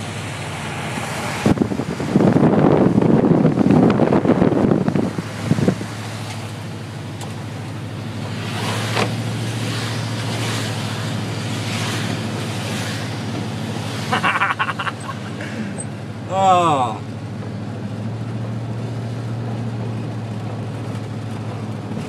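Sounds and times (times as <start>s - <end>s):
tyres hissing on wet road: 0.0s - 2.4s, 4.9s - 17.0s
car engine and road hum: 0.0s - 22.0s
wind buffeting microphone: 1.2s - 6.6s.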